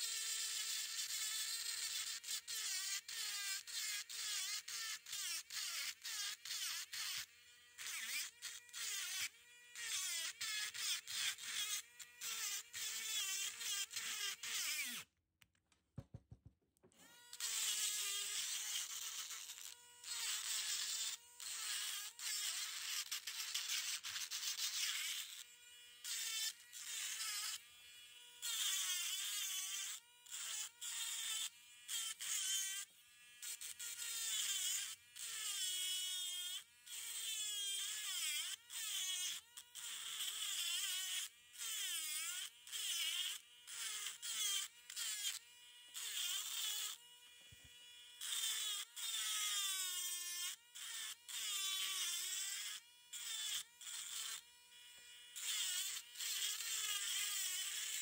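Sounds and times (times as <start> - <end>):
rotary tool grinding rock: 0.0 - 15.1, 48.2 - 58.0.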